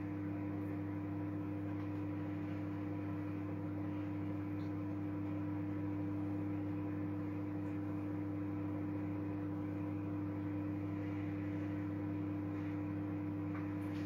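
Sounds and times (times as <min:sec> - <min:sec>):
microwave oven humming: 0:00.0 - 0:14.0.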